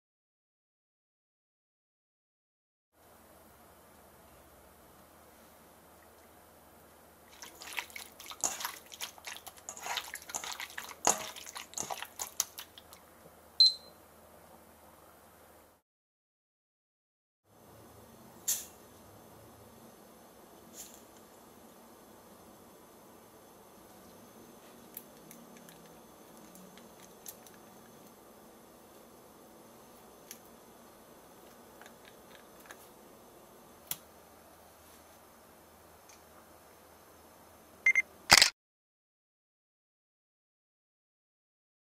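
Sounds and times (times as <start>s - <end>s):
wet squelching of chicken: 7.3s - 13.0s
kitchen timer beep: 13.6s - 14.0s, 37.9s - 38.1s.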